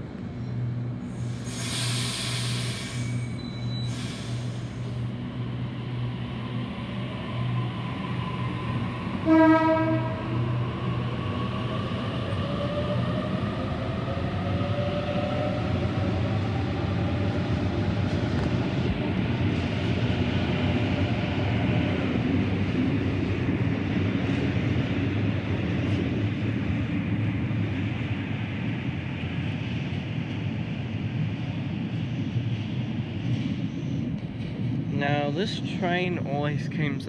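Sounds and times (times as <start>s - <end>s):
air hiss bursts: 1.3s - 3.3s
train horn toot: 9.2s - 10.4s.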